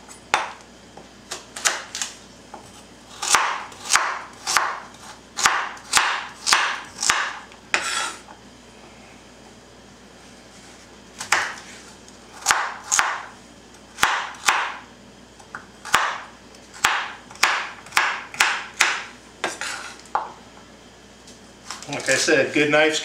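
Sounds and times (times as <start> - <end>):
knife chopping on wooden board: 1.3 - 8.2, 11.2 - 11.7, 12.4 - 13.3, 14.0 - 14.8, 15.8 - 20.3.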